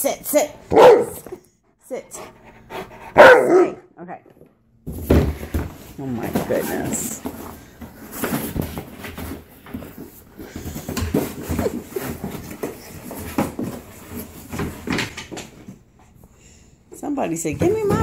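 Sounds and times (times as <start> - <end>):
dog pawing cardboard box: 4.9 - 15.2.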